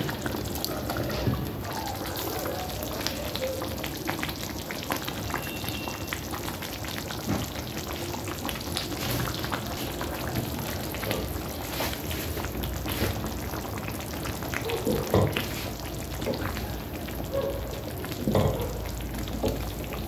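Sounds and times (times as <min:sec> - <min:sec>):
stew simmering and bubbling: 0:00.0 - 0:20.0.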